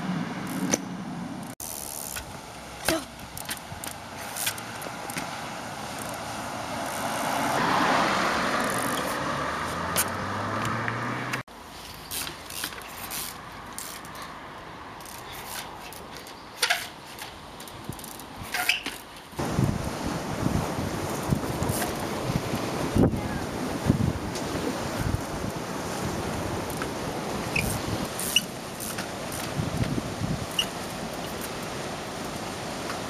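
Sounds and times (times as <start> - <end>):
bike clicking and knocking on log: 1.6 - 5.3, 12.1 - 14.2, 15.0 - 19.3, 27.6 - 30.8
car passing: 4.1 - 11.5
wind buffeting microphone: 19.4 - 31.8.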